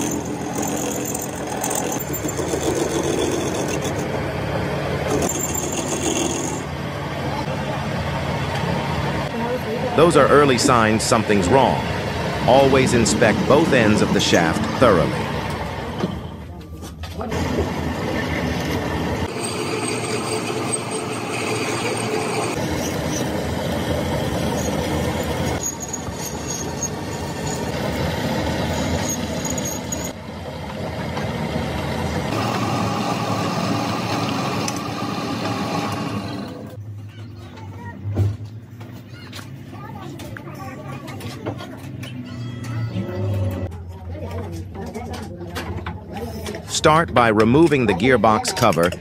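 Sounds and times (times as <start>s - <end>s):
lathe drilling steel: 0.0s - 4.1s, 5.0s - 6.7s, 17.3s - 30.2s, 31.7s - 36.8s.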